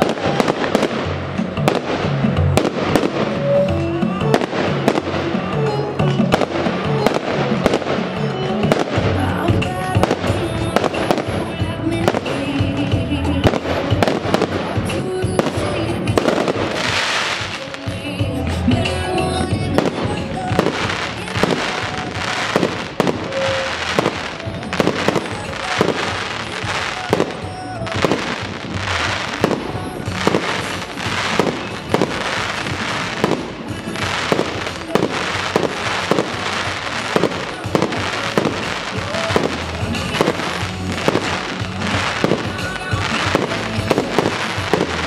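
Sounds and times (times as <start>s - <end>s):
firework crackling: 0.0s - 45.0s
music playing: 0.0s - 45.0s
firework shells bursting: 12.1s - 18.1s, 19.8s - 45.0s.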